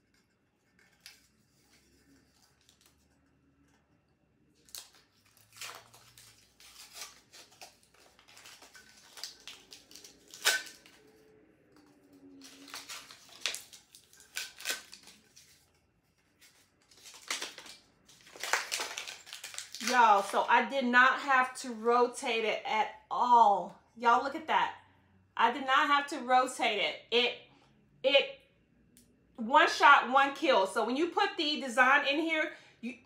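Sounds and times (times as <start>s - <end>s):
paper crinkling and ripping: 0.2s - 3.2s, 4.6s - 11.1s, 12.3s - 20.5s.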